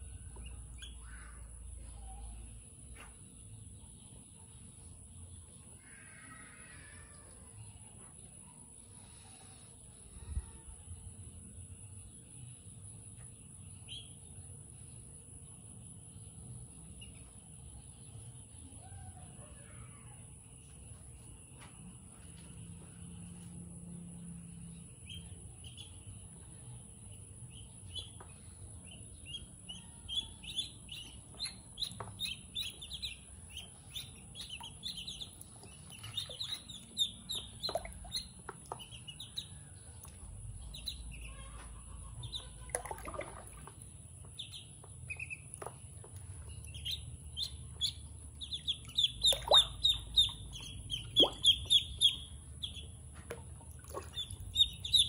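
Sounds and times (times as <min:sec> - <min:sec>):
ducklings peeping: 0:00.0 - 0:02.4, 0:25.0 - 0:55.0
water splashing: 0:42.6 - 0:44.0, 0:53.3 - 0:54.7.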